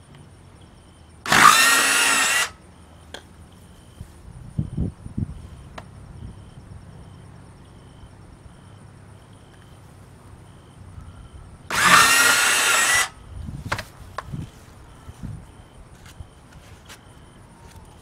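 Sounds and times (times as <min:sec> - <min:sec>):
cordless drill whining: 0:01.3 - 0:02.6, 0:11.7 - 0:13.2.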